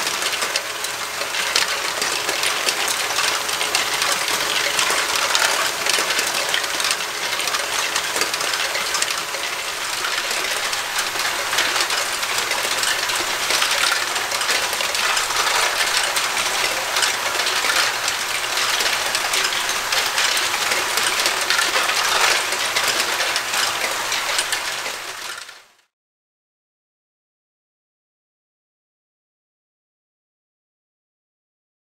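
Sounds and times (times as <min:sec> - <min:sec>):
plastic balls clattering: 0:01.4 - 0:25.6.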